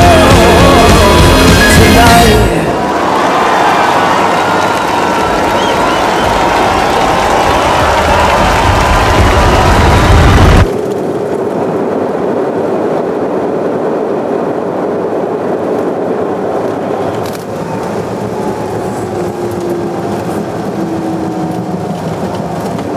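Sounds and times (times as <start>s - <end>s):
background music: 0.0s - 3.0s
airliner cabin rumble and hiss: 4.2s - 22.9s.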